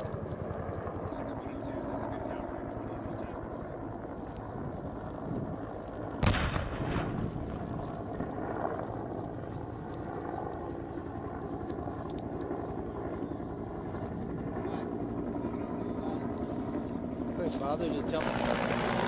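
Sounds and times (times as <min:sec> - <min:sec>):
distant explosion boom: 0:06.2 - 0:07.7.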